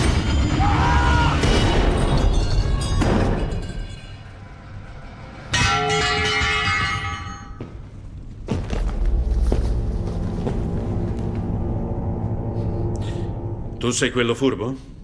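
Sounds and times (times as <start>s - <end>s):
background film score: 0.0s - 15.0s
metal object clanging and ringing: 1.8s - 4.8s, 5.4s - 7.8s.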